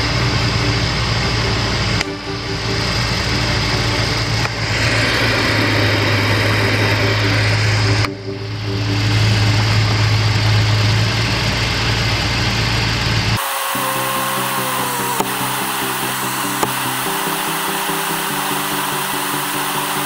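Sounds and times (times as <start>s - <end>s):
car engine idling: 0.0s - 20.0s
air conditioning blower hum: 13.0s - 20.0s.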